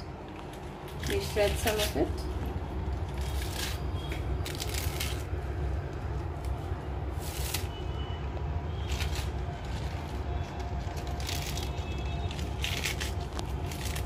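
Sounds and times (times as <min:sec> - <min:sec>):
lettuce leaves tearing: 0:00.9 - 0:02.0, 0:02.9 - 0:07.8, 0:08.8 - 0:14.0.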